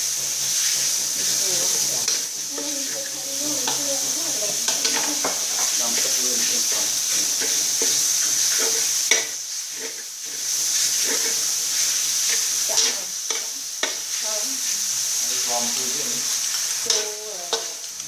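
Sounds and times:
food sizzling in hot oil: 0.0s - 18.0s
metal spatula scraping wok: 0.2s - 15.6s, 16.2s - 17.9s
spatula clicking on pan: 12.7s - 14.1s, 16.9s - 18.0s.

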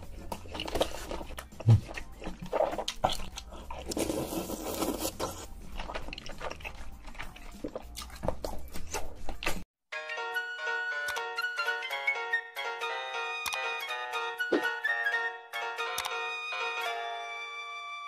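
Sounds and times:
wet chewing and slurping: 0.0s - 9.7s.

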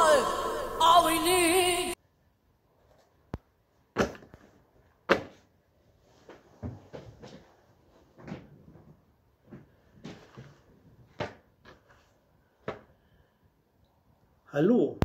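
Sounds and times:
soft knocks and rustles: 6.1s - 12.1s.

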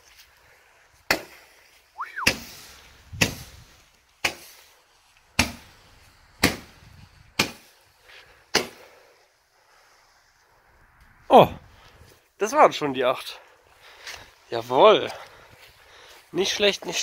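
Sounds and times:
short rising and falling whistle: 2.0s - 2.4s.

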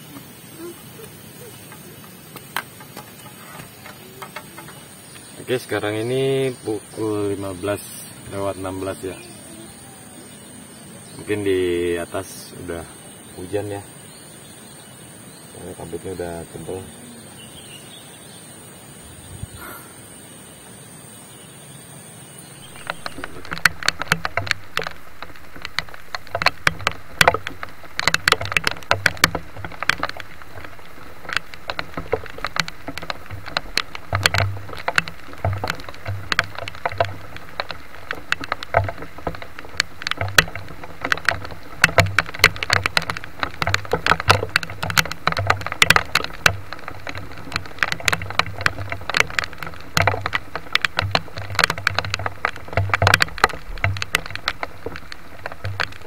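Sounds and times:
heavy rain falling: 0.0s - 14.0s, 22.6s - 56.0s
large drops tapping a surface: 22.6s - 56.0s.

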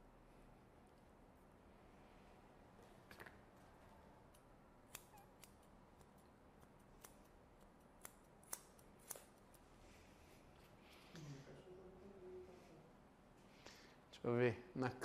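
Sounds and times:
scissors snipping hair: 4.3s - 9.6s.

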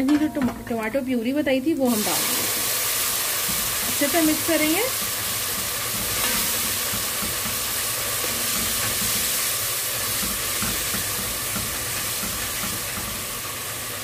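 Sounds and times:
masala sizzling in oil: 0.5s - 14.0s
spatula stirring in pot: 3.0s - 13.6s.

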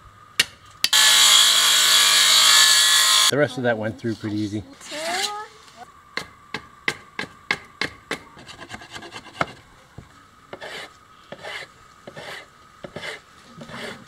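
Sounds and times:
scraping rasping strokes on wood: 8.4s - 9.6s, 10.5s - 14.0s.

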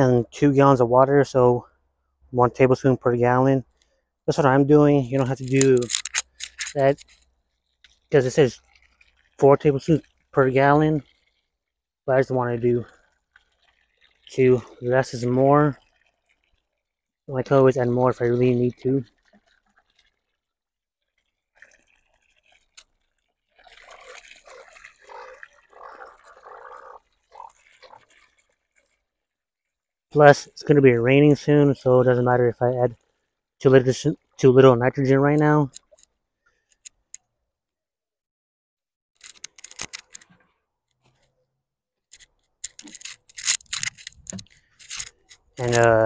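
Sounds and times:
water splashing into soil: 21.1s - 29.2s.

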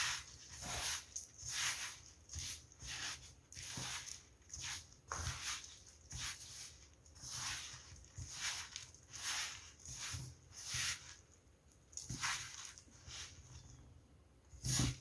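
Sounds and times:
hands kneading dough: 0.0s - 15.0s.

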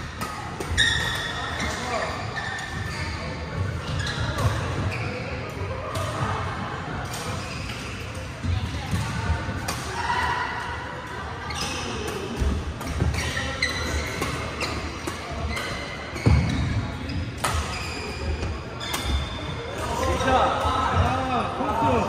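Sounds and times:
shoes squeaking on floor: 0.7s - 5.4s, 13.0s - 20.0s.

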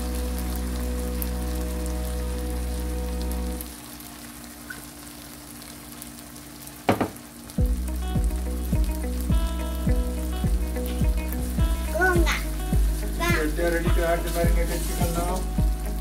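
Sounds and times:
background music: 0.0s - 3.8s, 7.6s - 16.0s
liquid sizzling in frying pan: 0.0s - 16.0s.

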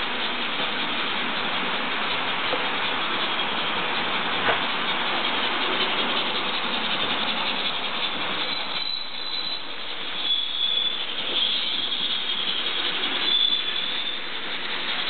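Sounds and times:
model trains rolling rumble: 0.0s - 15.0s.

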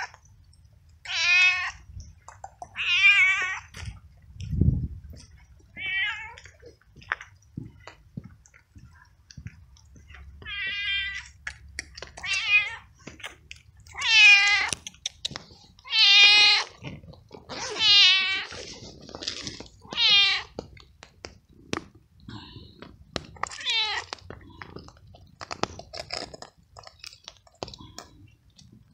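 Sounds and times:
cat meowing loudly: 1.0s - 1.8s, 2.7s - 3.7s, 13.9s - 14.7s, 15.8s - 16.8s, 19.8s - 20.6s, 23.5s - 24.2s.

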